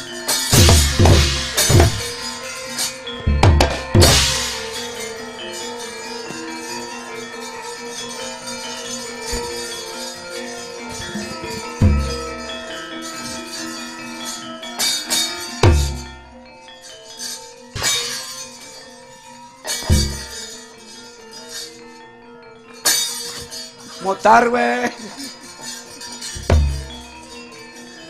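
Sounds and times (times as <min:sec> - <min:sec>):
gamelan ensemble playing: 0:00.0 - 0:28.0
deep drum strokes: 0:00.6 - 0:02.2, 0:03.3 - 0:04.8, 0:26.4 - 0:27.0
sharp knocks: 0:00.6 - 0:02.2, 0:03.3 - 0:04.8, 0:11.8 - 0:12.4, 0:15.6 - 0:16.2, 0:19.9 - 0:20.4, 0:26.4 - 0:27.1.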